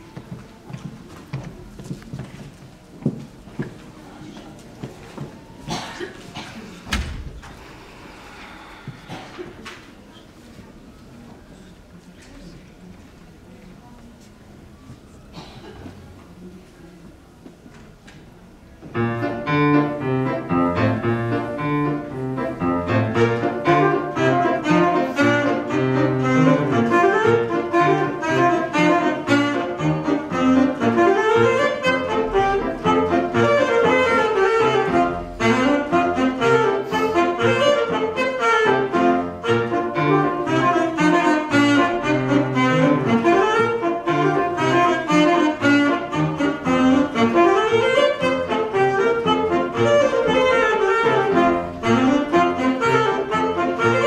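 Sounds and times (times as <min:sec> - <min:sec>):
grand piano accompaniment: 0:18.7 - 0:54.0
alto saxophone melody: 0:18.9 - 0:54.0.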